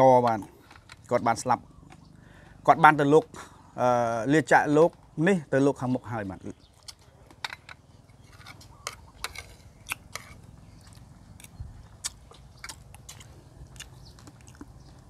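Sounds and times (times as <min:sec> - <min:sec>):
person chewing food: 0:08.2 - 0:15.0.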